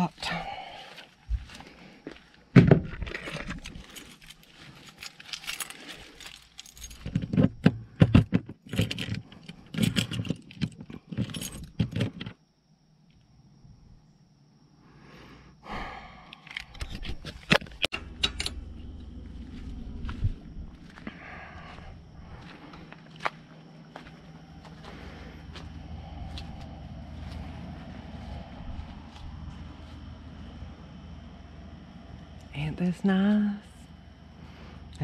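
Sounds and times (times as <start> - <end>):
chain and padlock handled: 3.0 - 12.4
keys jangling: 3.2 - 7.5, 8.6 - 12.3.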